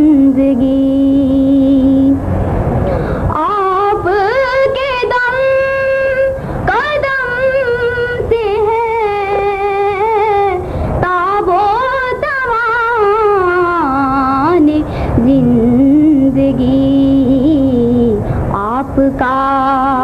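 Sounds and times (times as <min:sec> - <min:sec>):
singer breathing: 0:02.4 - 0:03.3, 0:06.4 - 0:06.6, 0:10.6 - 0:11.0, 0:14.9 - 0:15.2, 0:18.2 - 0:18.5
girl singing solo: 0:03.3 - 0:20.0.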